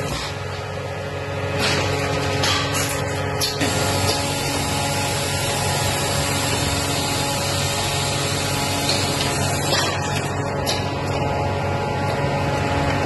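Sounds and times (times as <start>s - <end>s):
low machine hum: 0.0s - 13.0s
motors and conveyors running: 0.0s - 13.0s.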